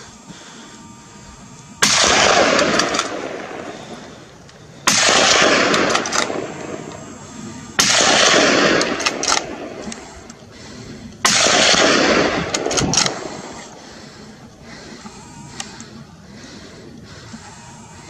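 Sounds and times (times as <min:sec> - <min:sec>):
loud gunshots with echo: 0:01.8 - 0:03.8, 0:04.8 - 0:06.9, 0:07.8 - 0:09.9, 0:11.2 - 0:13.3.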